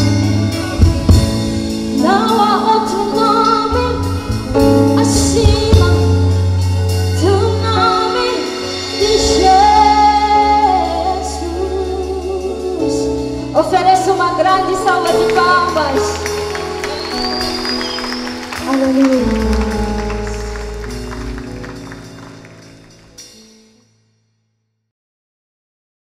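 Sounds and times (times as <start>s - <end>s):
live band playing: 0.0s - 23.8s
woman singing gospel song: 1.9s - 6.5s, 7.2s - 16.3s.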